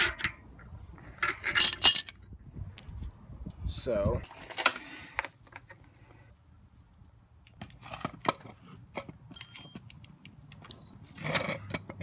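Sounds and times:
metallic ring: 9.3 - 9.9.

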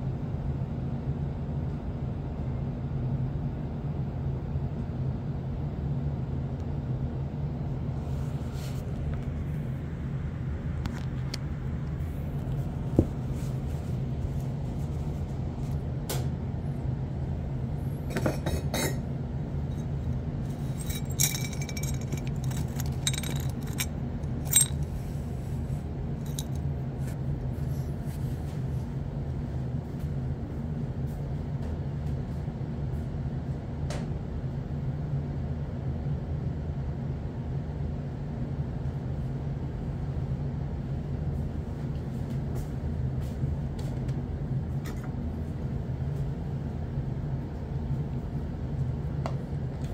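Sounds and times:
low machine hum: 0.0 - 49.9
light clicks and clinks: 20.6 - 24.9, 26.2 - 26.6.

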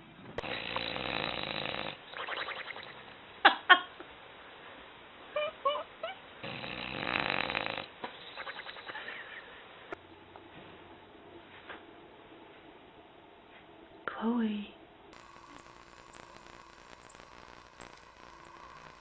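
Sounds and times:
dog snoring: 0.4 - 3.0, 6.4 - 9.0.

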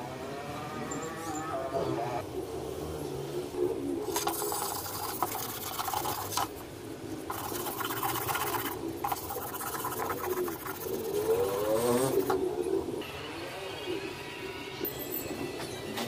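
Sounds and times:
sandpaper rasping on wood: 7.3 - 12.3.

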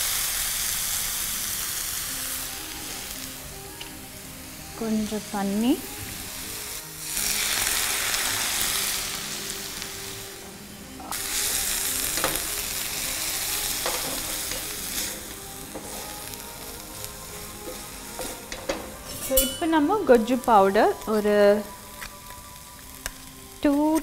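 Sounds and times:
onions sizzling in hot pan: 0.0 - 24.0
spatula scraping pan: 13.7 - 16.3.

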